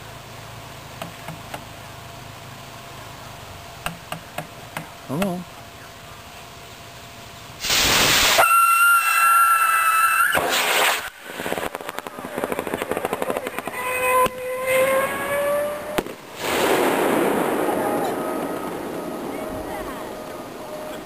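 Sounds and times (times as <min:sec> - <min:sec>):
rocket launching with rushing hiss: 0:07.6 - 0:21.0
rocket whistle: 0:07.7 - 0:11.2, 0:13.2 - 0:16.8, 0:17.4 - 0:21.0.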